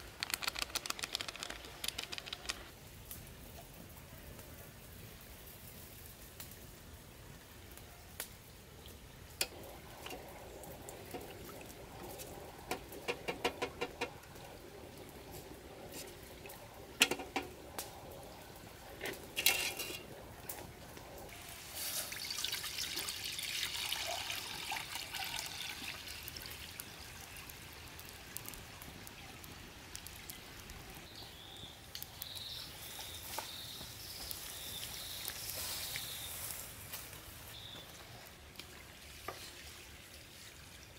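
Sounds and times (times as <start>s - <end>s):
liquid sloshing in metal bowl: 19.0s - 20.2s
liquid pouring into wok: 21.3s - 27.0s.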